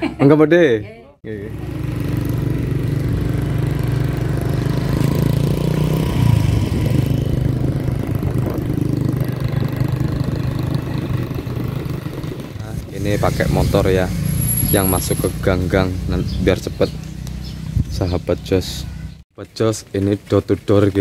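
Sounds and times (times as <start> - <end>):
small motorcycle engine running: 1.3 - 15.5.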